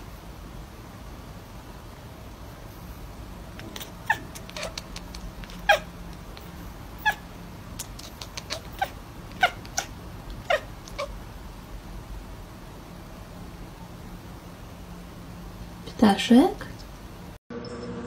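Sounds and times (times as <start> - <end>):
cat chirping meows: 3.6 - 7.2, 7.8 - 11.2.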